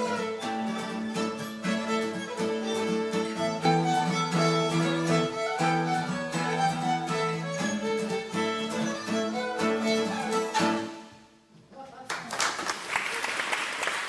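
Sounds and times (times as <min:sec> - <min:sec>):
strummed acoustic guitar: 0:00.0 - 0:11.2
fiddle playing folk tune: 0:00.0 - 0:11.3.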